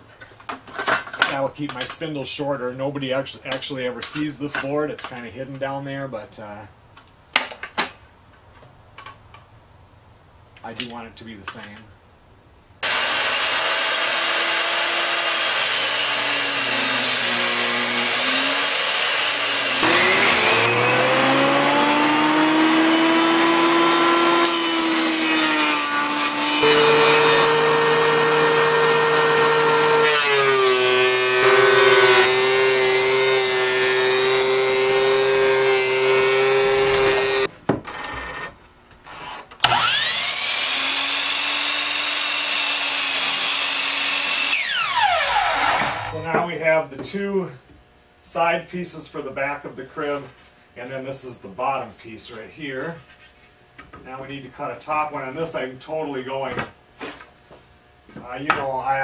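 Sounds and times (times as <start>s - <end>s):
power saws cutting wood: 12.8s - 37.5s, 39.1s - 46.2s.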